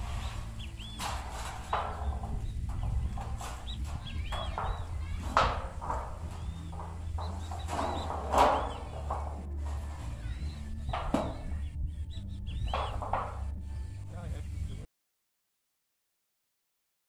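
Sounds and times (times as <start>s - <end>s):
metal sheet flexing and knocking: 0.0s - 14.2s
small birds chirping: 0.0s - 14.8s
low wind rumble: 0.0s - 14.9s.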